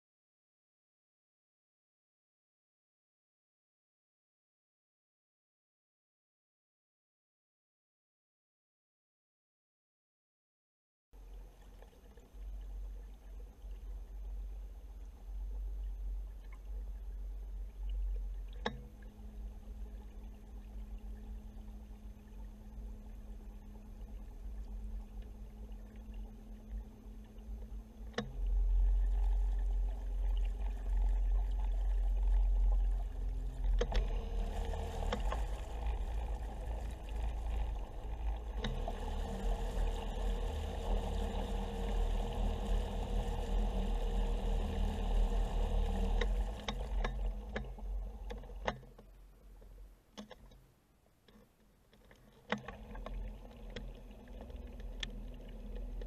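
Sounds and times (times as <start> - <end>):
submerged propeller churning water: 11.2 - 50.7, 51.3 - 56.0.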